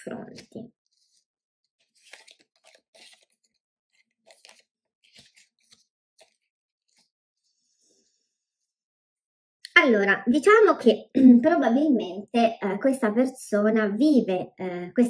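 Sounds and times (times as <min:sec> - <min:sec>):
cards sliding and tapping on table: 0:04.3 - 0:07.1.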